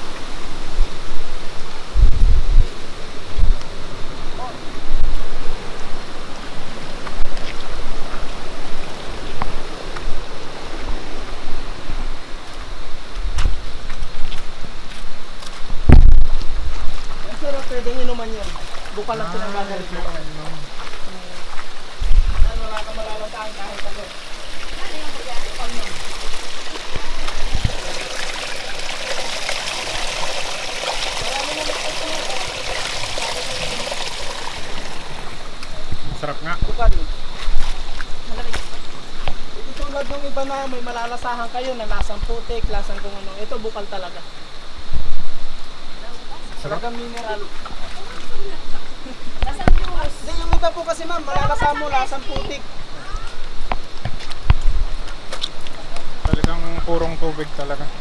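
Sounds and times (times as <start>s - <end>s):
wind buffeting microphone: 0.0s - 17.4s, 21.5s - 23.0s, 24.2s - 28.4s, 51.3s - 56.9s
mountain stream rushing: 0.0s - 58.0s
spring water trickling over rocks: 2.8s - 36.4s, 45.6s - 58.0s
footsteps on loose stones: 12.4s - 19.2s, 20.0s - 28.0s, 53.3s - 57.0s.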